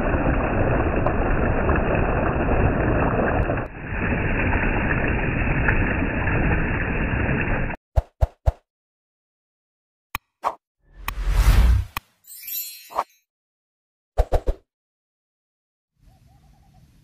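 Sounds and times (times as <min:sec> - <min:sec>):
stream water splashing over rocks: 0:00.0 - 0:07.8.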